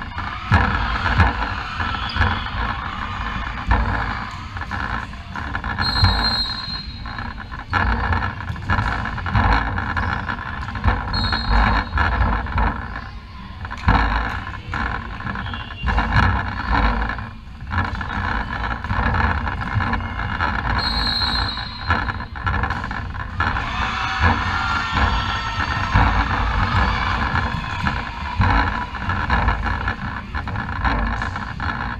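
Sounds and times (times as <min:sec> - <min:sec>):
echoing sports hall noise: 0:00.0 - 0:31.9
short high whistle blasts: 0:05.8 - 0:07.0, 0:11.1 - 0:11.8, 0:20.8 - 0:21.9.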